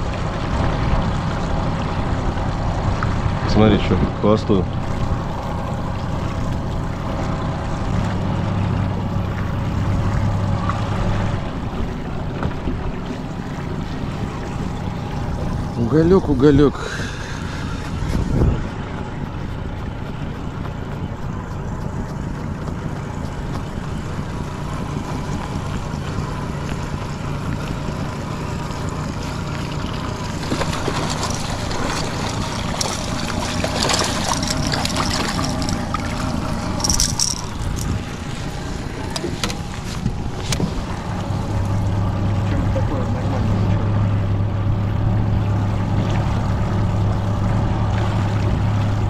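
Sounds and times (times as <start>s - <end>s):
outboard motor humming: 0.0s - 49.0s
clicks and rustles: 30.5s - 38.4s.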